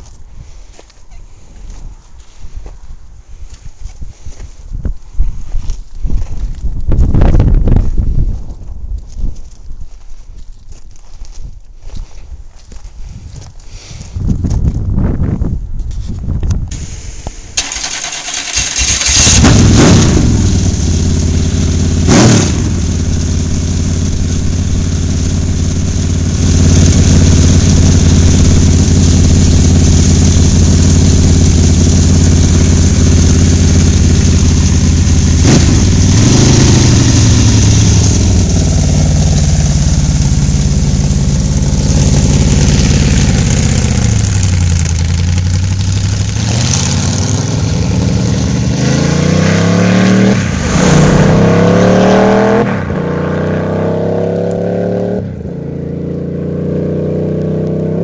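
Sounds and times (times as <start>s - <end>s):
engine throttle blips: 16.7s - 55.9s
motorcycle accelerating through gears: 18.5s - 58.0s
motorcycle engine idling: 20.3s - 46.4s.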